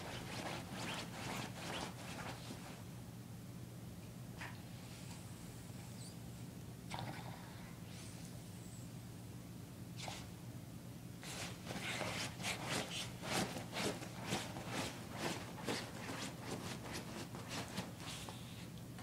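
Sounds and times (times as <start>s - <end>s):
paws scratching on cloth: 0.0s - 2.8s, 11.2s - 18.5s.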